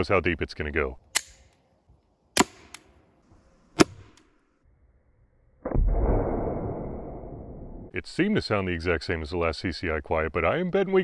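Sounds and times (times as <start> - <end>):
suppressed pistol pops: 1.1 - 1.6, 2.4 - 2.9.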